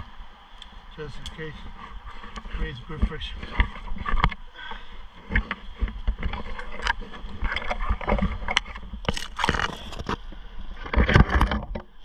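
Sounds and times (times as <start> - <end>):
rope scraping against bark: 1.1 - 10.2.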